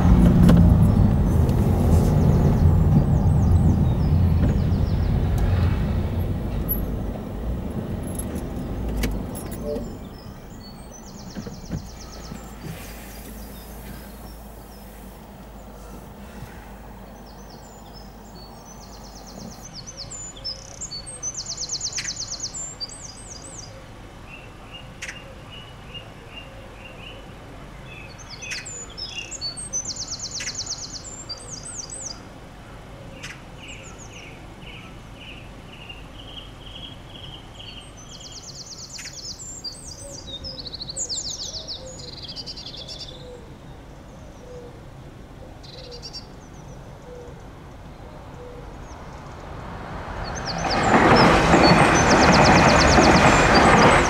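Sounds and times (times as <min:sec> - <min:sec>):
steady low rumble: 0:00.0 - 0:19.1
songbirds trilling: 0:00.0 - 0:27.2, 0:27.8 - 0:54.0.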